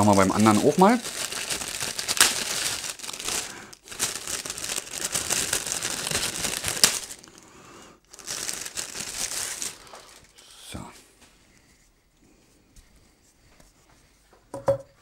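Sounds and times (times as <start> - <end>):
plastic sleeve crinkling: 0.0 - 10.4.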